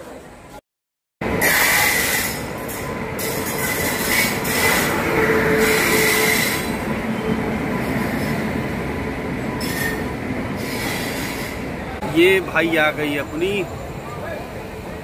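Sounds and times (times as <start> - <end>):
rail rumble: 1.2 - 15.0
train wheels squealing on rails: 1.4 - 8.7, 9.3 - 11.8.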